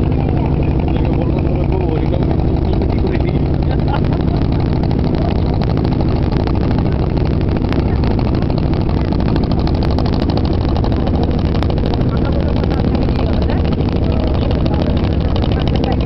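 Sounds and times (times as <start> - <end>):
motorboat engine drone: 0.0 - 16.0
water rushing under hull: 0.0 - 16.0.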